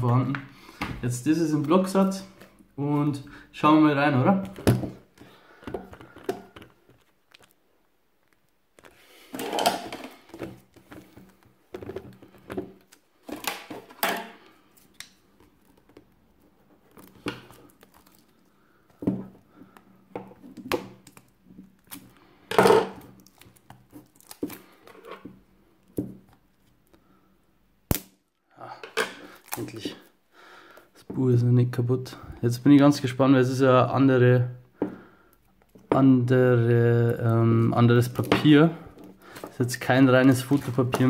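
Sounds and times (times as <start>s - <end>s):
plastic wrapping crinkling: 14.6s - 18.5s.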